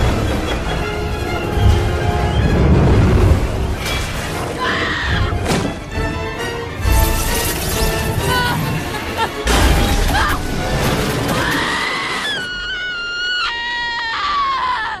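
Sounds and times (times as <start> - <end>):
music: 0.0 - 12.4
loud crashing and shattering: 6.8 - 12.5
long high-pitched scream: 11.5 - 15.0.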